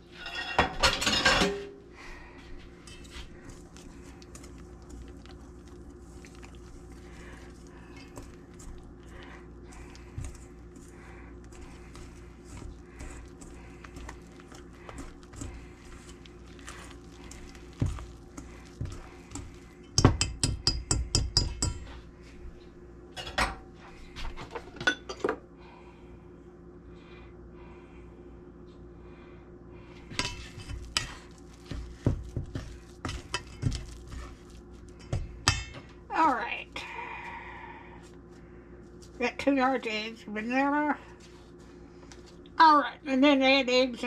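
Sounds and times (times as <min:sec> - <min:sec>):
whisk scraping in a metal bowl: 0:02.8 - 0:21.1, 0:30.1 - 0:35.7
spoon scraping metal bowl: 0:30.1 - 0:35.7.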